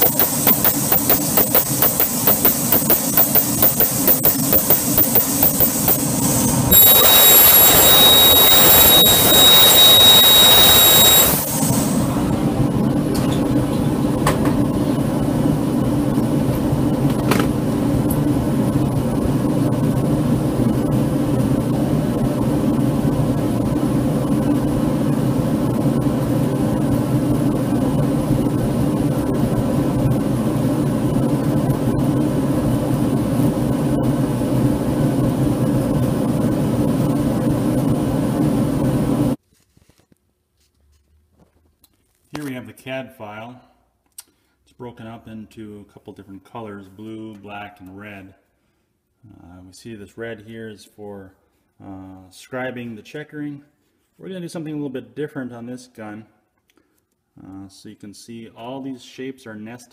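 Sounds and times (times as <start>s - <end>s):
laser cutter hiss with whistles: 0.0s - 12.1s.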